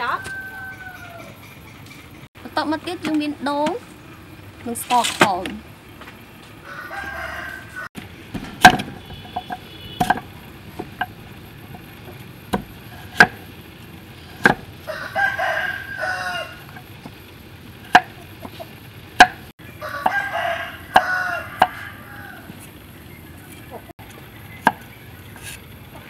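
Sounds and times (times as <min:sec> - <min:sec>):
rooster crowing: 0:00.0 - 0:01.4, 0:06.6 - 0:08.0, 0:14.8 - 0:16.8, 0:19.6 - 0:22.7
cleaver chopping on wooden board: 0:08.6 - 0:11.1, 0:12.5 - 0:13.4, 0:14.4 - 0:14.7.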